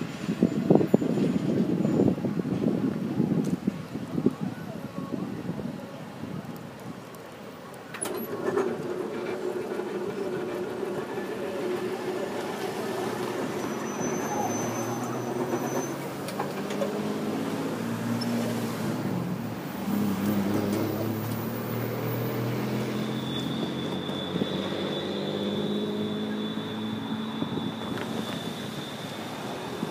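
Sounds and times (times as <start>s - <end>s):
distant diesel train rumble: 8.1s - 17.0s.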